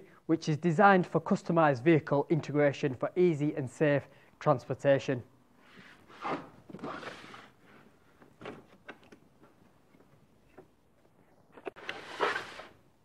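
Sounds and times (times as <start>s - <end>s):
plastic case scraping: 11.6s - 12.8s.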